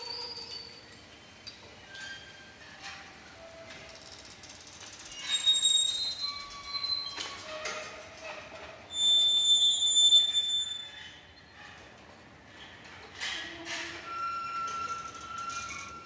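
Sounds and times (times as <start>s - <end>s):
high squeaks and squeals: 5.1s - 11.5s.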